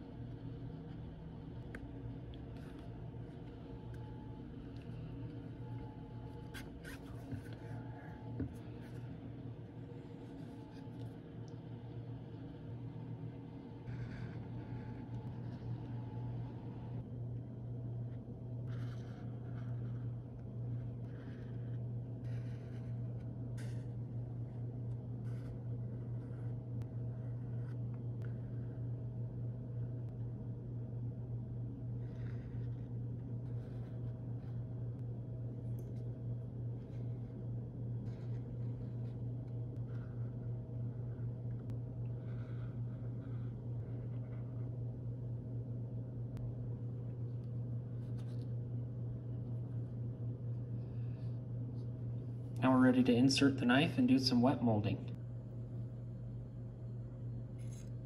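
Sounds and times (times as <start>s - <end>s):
steady low hum: 0.0s - 58.0s.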